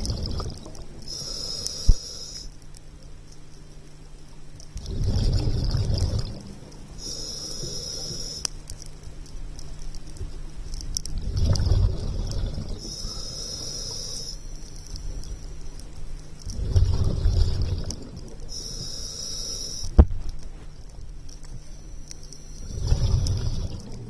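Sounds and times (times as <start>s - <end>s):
exhaled bubbles rushing: 0.0s - 0.9s, 4.8s - 6.5s, 11.2s - 12.8s, 16.5s - 18.4s, 22.7s - 24.0s
faint steady hum: 0.0s - 24.0s
regulator inhalation hiss: 1.1s - 2.5s, 7.0s - 8.5s, 12.8s - 14.5s, 18.5s - 20.0s.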